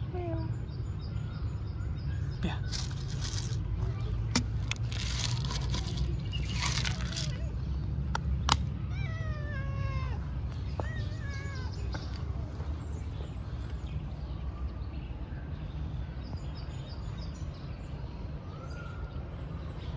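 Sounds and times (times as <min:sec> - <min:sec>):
cat meowing: 0:08.8 - 0:11.8.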